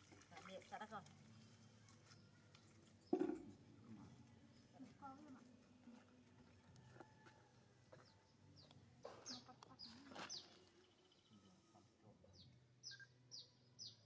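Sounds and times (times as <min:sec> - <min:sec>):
small bird chirping: 0:08.6 - 0:11.6, 0:12.3 - 0:14.0.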